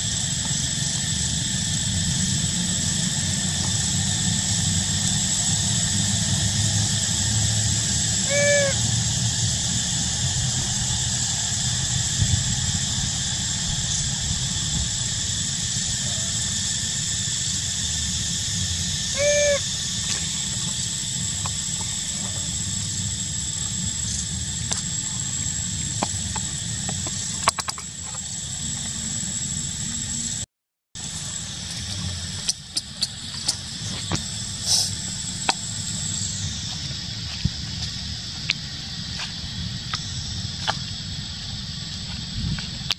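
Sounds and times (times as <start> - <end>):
high-pitched insect drone: 0.0 - 30.4, 31.0 - 42.9
short hoot-like call: 8.2 - 8.9, 19.1 - 19.7.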